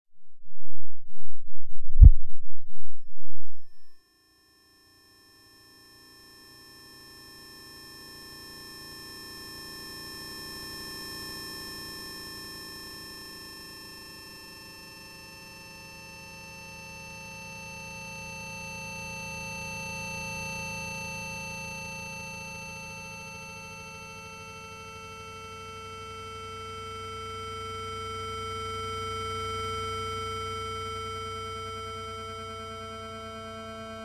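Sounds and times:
electronic sine tone drone: 0.3 - 4.0.

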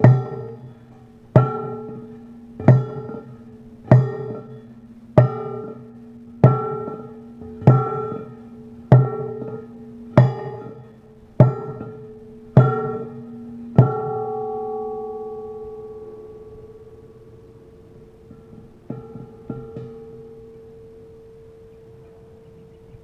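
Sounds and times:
bell-like music notes: 0.0 - 23.0.

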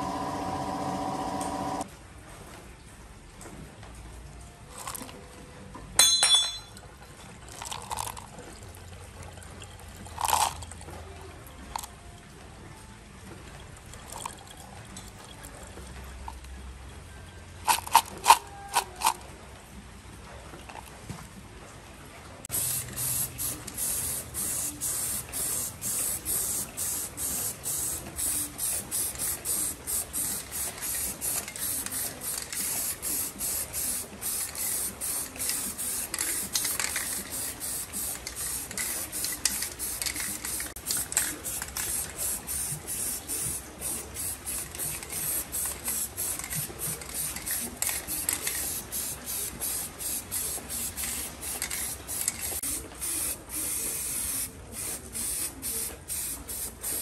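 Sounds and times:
spray paint can hissing: 22.5 - 57.0.

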